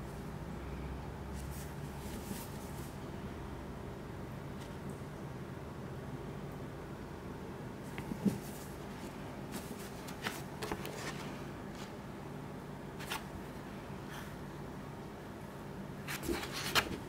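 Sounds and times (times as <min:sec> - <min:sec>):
faint steady hum: 0:00.0 - 0:17.0
paper pages rustling: 0:01.4 - 0:02.9, 0:08.0 - 0:12.0, 0:13.0 - 0:13.3, 0:16.1 - 0:17.0.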